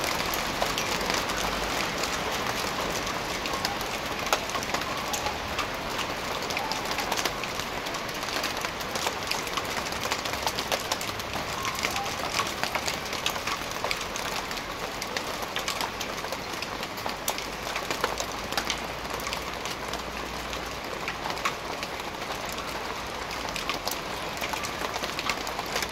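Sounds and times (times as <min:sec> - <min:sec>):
hailstones ticking on street: 0:00.0 - 0:25.9
hiss of falling rain and hail: 0:00.0 - 0:25.9.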